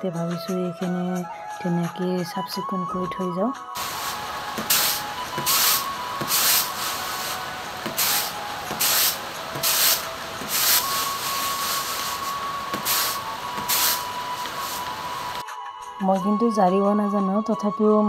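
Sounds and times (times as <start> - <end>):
rice rattling on bamboo tray: 4.6 - 12.2.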